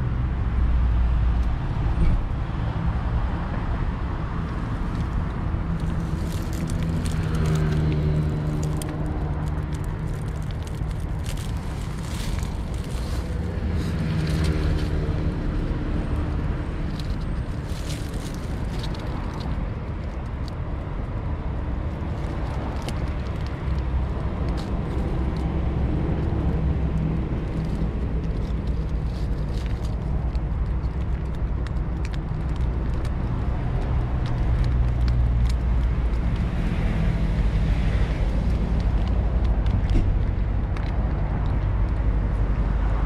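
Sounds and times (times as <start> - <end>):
road traffic rumble: 0.0 - 43.0
cat eating dry kibble from metal dish: 22.0 - 36.9.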